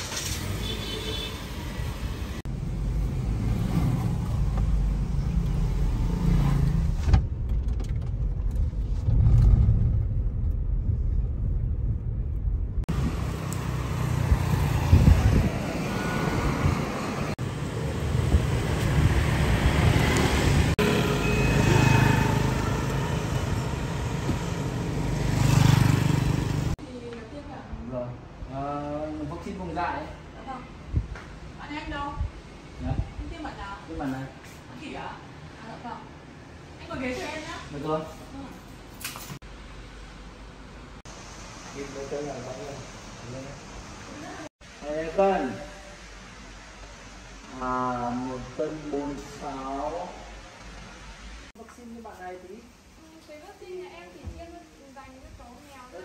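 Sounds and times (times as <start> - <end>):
car engine and road rumble: 0.0 - 26.8
street traffic: 0.0 - 56.0.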